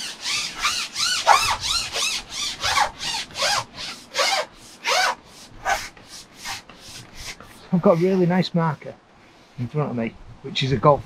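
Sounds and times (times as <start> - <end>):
fishing pole rubbing squeaks: 0.0 - 8.4.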